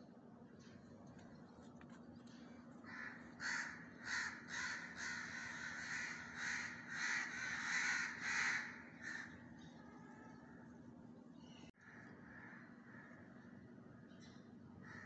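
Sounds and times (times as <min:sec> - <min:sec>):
crows cawing: 0:02.8 - 0:09.5, 0:11.8 - 0:13.6.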